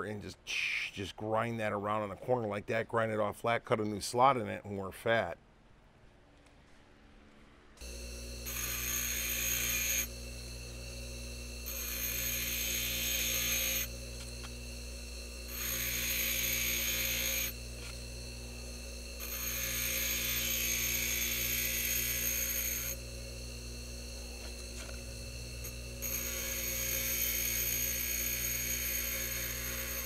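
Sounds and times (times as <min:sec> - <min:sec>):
bench grinder motor hum: 0:07.8 - 0:30.0
grinding hiss of metal: 0:07.8 - 0:30.0.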